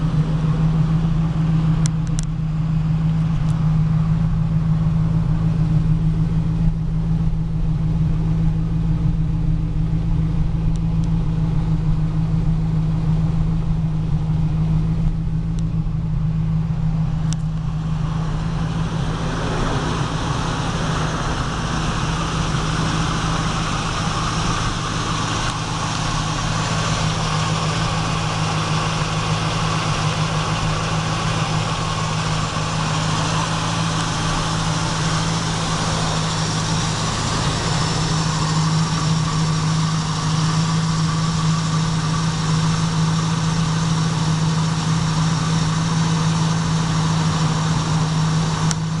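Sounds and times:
car engine idling: 0:00.0 - 0:49.0.

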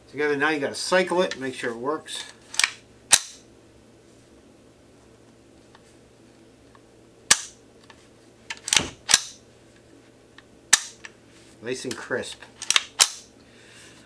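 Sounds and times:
rifle bolt clack and snap: 0:02.5 - 0:03.4, 0:07.3 - 0:07.6, 0:08.5 - 0:09.4, 0:10.7 - 0:11.1, 0:12.6 - 0:13.3
rifle action metallic click: 0:12.6 - 0:13.3.

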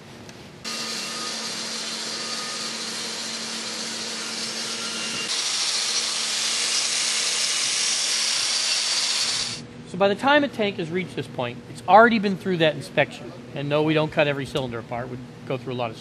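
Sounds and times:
angle grinder wire brush on metal: 0:00.7 - 0:09.6.

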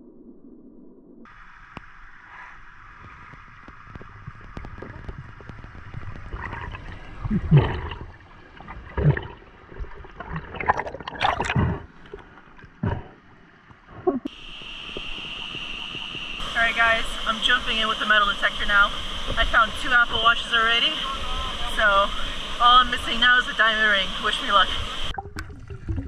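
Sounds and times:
rushes of water and bubbles: 0:00.0 - 0:16.6, 0:24.5 - 0:26.0
underwater bubbling and gurgling: 0:01.3 - 0:21.0, 0:21.7 - 0:26.0.

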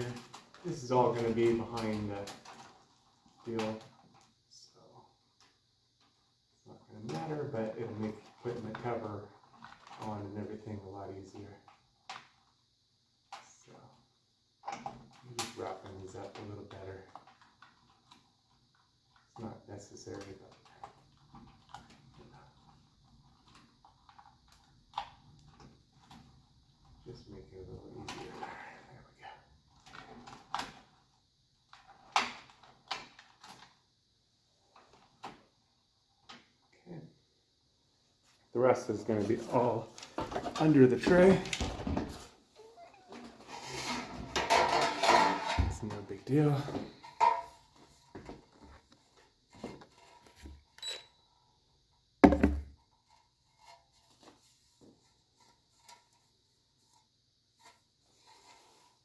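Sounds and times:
loud thump: 0:52.2 - 0:52.7.

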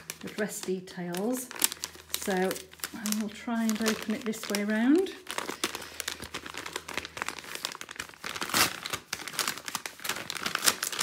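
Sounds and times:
envelope ripping: 0:00.0 - 0:11.0
padded envelope crinkling: 0:00.0 - 0:11.0.

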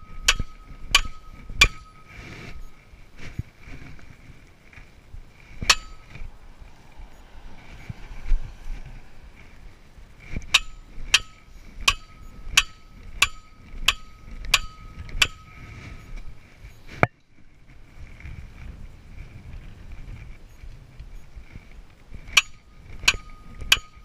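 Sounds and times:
sledgehammer striking steel post: 0:00.0 - 0:02.7, 0:05.6 - 0:06.2, 0:10.4 - 0:15.6, 0:22.4 - 0:24.0.

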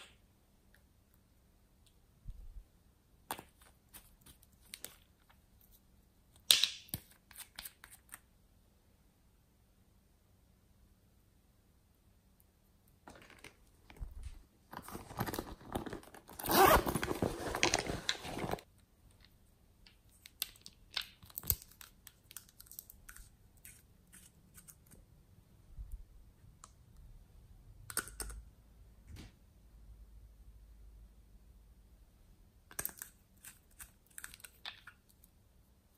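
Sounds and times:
rustling and crinkling: 0:13.0 - 0:18.7.

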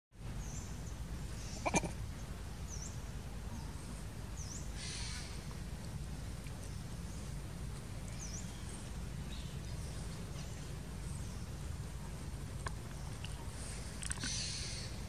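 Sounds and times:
steady low rumble: 0:00.2 - 0:15.0
sharp animal call: 0:01.5 - 0:02.0
small birds chirping: 0:06.5 - 0:15.0.

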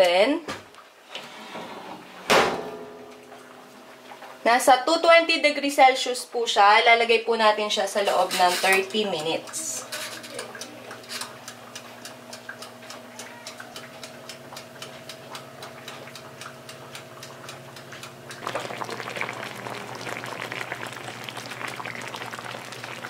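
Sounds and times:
oven hum: 0:01.1 - 0:23.0
mechanical timer ticking: 0:08.7 - 0:18.4
food simmering and bubbling: 0:08.7 - 0:23.0.

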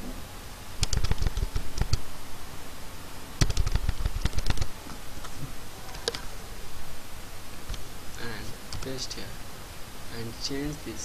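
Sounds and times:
keyboard keys clicking: 0:00.8 - 0:02.0, 0:03.4 - 0:04.7.

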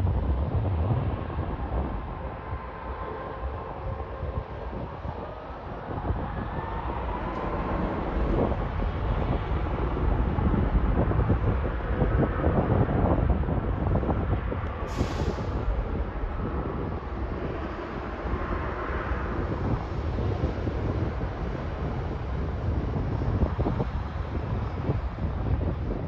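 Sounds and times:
faint gliding engine whine: 0:00.0 - 0:26.0
jet engines roaring: 0:00.0 - 0:26.0
brief hiss: 0:14.9 - 0:15.7.

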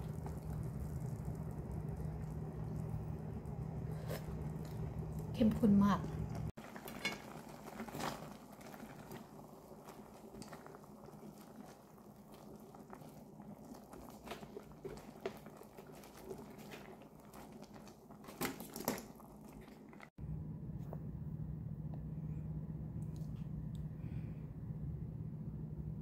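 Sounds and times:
wet stirring and squelching: 0:00.0 - 0:20.2.

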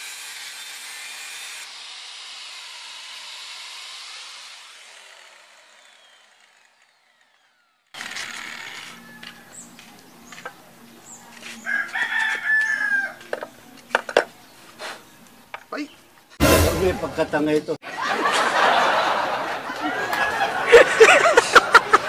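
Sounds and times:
angle grinder spinning down: 0:00.0 - 0:09.4
rooster crowing: 0:08.3 - 0:09.7, 0:11.6 - 0:13.3
hand tool metal clicks and taps: 0:12.2 - 0:14.3.

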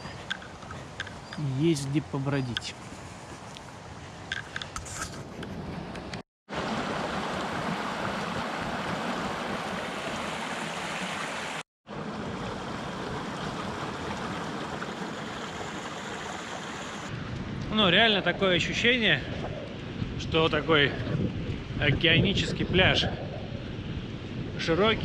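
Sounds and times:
stream splashing over stones: 0:06.5 - 0:17.1.

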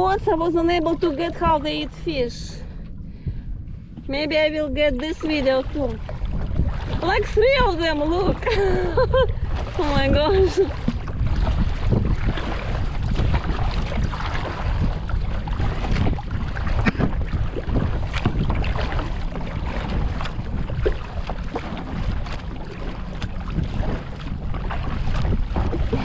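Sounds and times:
water sounds from kayak: 0:00.0 - 0:26.0
wind rumbling on microphone: 0:00.0 - 0:26.0
small splashes: 0:05.0 - 0:26.0
knocks against hull: 0:15.6 - 0:26.0.

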